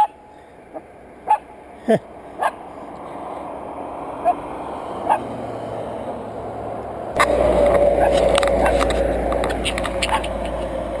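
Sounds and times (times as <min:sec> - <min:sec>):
road traffic: 0:00.0 - 0:11.0
dog barking: 0:01.2 - 0:01.5, 0:02.4 - 0:02.6, 0:10.0 - 0:10.4.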